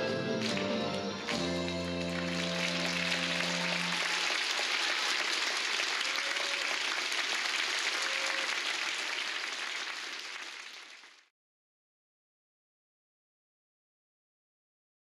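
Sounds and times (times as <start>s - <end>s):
audience applauding: 0.0s - 11.3s.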